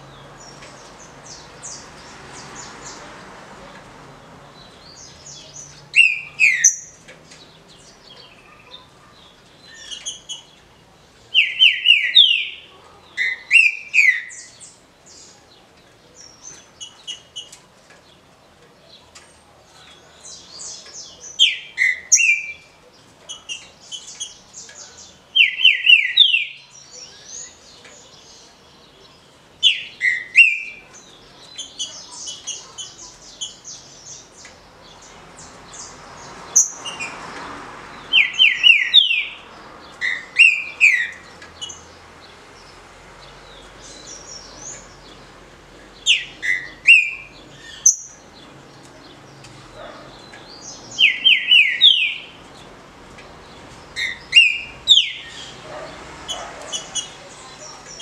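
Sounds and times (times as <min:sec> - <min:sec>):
bird whistled song: 0:06.0 - 0:07.0, 0:11.4 - 0:12.6, 0:13.2 - 0:14.5, 0:21.4 - 0:22.7, 0:25.4 - 0:27.2, 0:29.7 - 0:30.8, 0:38.2 - 0:39.4, 0:40.0 - 0:41.2, 0:46.1 - 0:48.2, 0:50.9 - 0:52.3, 0:54.0 - 0:55.4.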